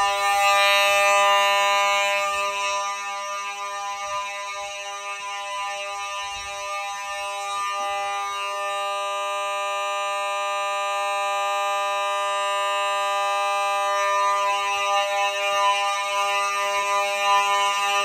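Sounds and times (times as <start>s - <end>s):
fire alarm horn buzzing: 0.0s - 18.0s.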